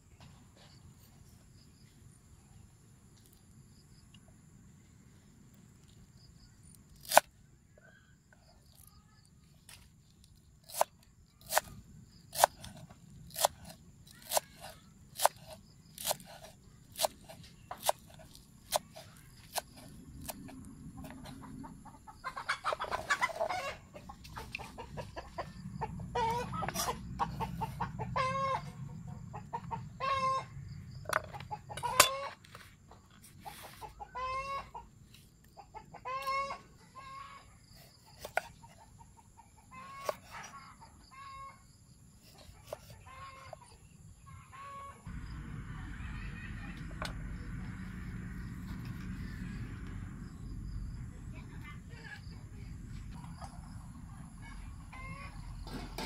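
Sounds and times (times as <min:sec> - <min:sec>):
chickens clucking: 0:21.0 - 0:41.6, 0:53.1 - 0:56.0.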